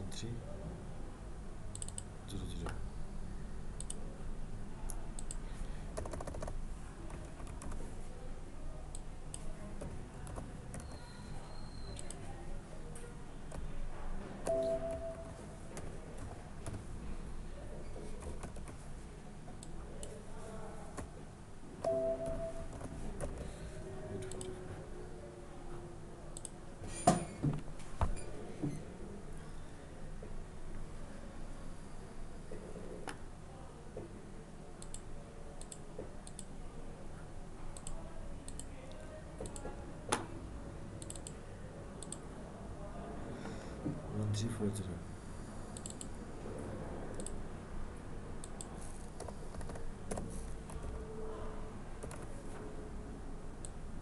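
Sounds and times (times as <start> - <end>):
faint room noise: 0.0 - 54.0
low background hum: 0.0 - 54.0
keyboard typing: 1.7 - 2.1, 5.2 - 7.9, 8.9 - 12.3, 14.4 - 16.8, 18.1 - 18.8, 21.8 - 23.6, 41.0 - 41.4, 45.8 - 46.2, 47.1 - 47.4, 48.4 - 51.0, 52.0 - 52.5
mouse clicks: 1.7 - 2.1, 3.8 - 4.0, 10.2 - 12.3, 24.2 - 24.6, 26.4 - 26.6, 34.8 - 36.5, 41.0 - 41.4, 42.0 - 42.2, 45.8 - 46.1, 47.1 - 47.4
keyboard and mouse clicks: 1.7 - 2.8, 3.8 - 4.0, 4.9 - 5.4, 6.0 - 7.8, 8.9 - 11.2, 11.8 - 12.3, 18.2 - 18.8, 24.2 - 24.6, 26.4 - 26.6, 34.8 - 36.5, 37.8 - 40.3, 41.0 - 41.4, 42.0 - 42.2, 45.8 - 46.2, 47.1 - 47.4, 48.4 - 51.0, 52.0 - 52.4.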